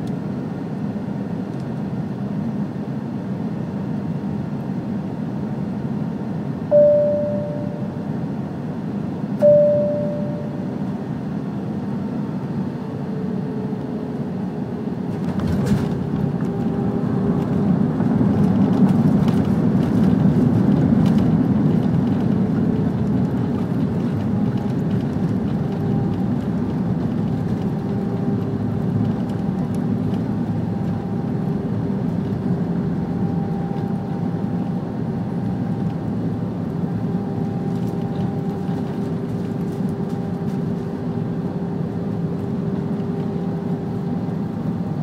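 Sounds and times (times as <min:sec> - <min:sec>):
aircraft cabin rumble: 0:00.0 - 0:45.0
faint hum: 0:06.6 - 0:13.7.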